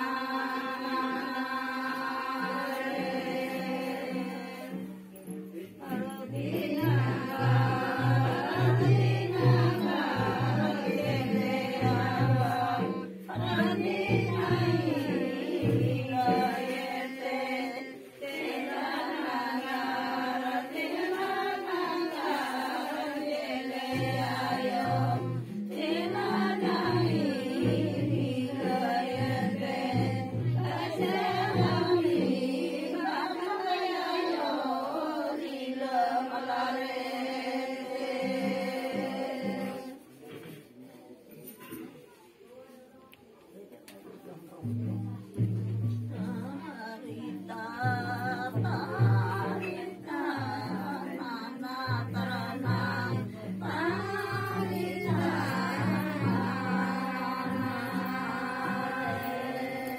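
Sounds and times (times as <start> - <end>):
women singing together: 0.0 - 40.6, 44.6 - 59.9.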